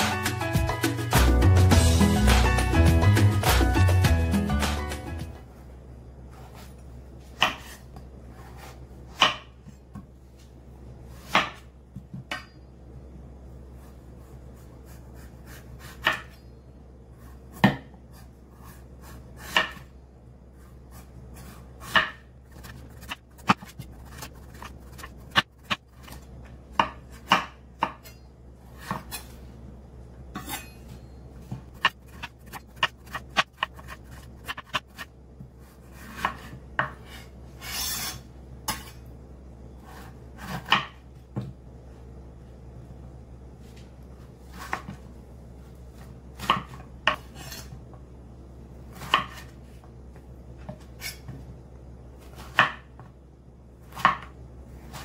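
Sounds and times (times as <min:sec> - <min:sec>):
knife chopping on cutting board: 0:07.4 - 0:10.1, 0:11.2 - 0:12.5, 0:14.6 - 0:16.4, 0:17.4 - 0:19.9, 0:20.9 - 0:28.1, 0:28.8 - 0:29.3, 0:31.5 - 0:38.9, 0:39.9 - 0:41.5, 0:46.4 - 0:47.7, 0:48.9 - 0:49.6, 0:52.2 - 0:52.9, 0:53.9 - 0:54.3.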